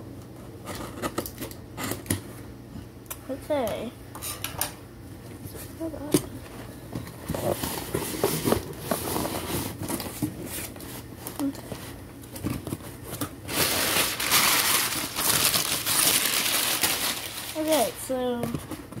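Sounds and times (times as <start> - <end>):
packing paper crumpling: 13.4 - 18.1.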